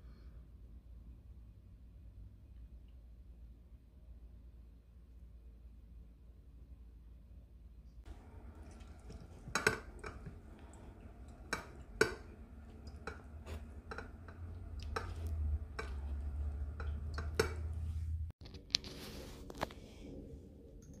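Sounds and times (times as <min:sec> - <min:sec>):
low steady hum: 0:00.0 - 0:21.0
lemon knocking on ceramic juicer: 0:11.2 - 0:17.8.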